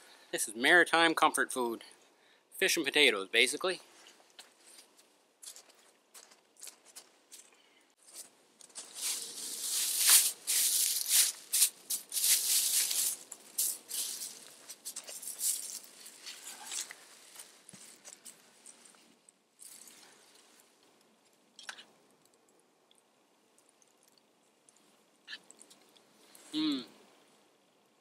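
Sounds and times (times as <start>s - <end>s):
short crinkle: 4.0s - 20.7s
clothing rustling: 6.8s - 20.6s
snow crunching: 8.8s - 18.6s.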